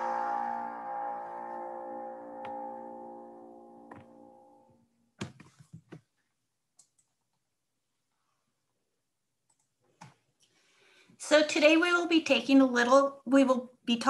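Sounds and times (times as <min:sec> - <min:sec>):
background music: 0:00.0 - 0:04.7.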